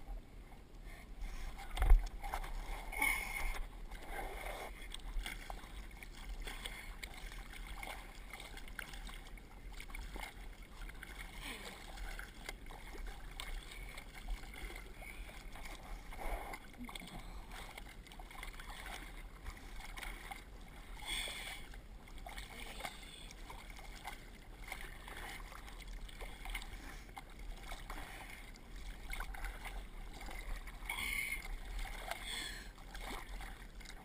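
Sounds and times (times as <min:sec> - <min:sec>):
water lapping against board: 0:00.8 - 0:34.0
small water splashes: 0:01.2 - 0:34.0.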